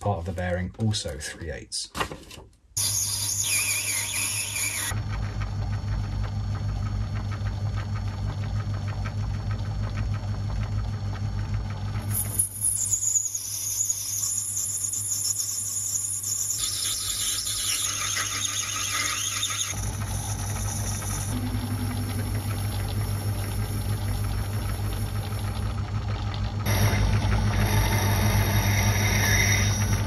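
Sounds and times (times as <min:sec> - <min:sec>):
high-pitched metal cutting noise: 0:02.8 - 0:04.9, 0:12.1 - 0:22.8, 0:26.7 - 0:30.0
lathe humming: 0:02.9 - 0:25.9, 0:26.6 - 0:30.0.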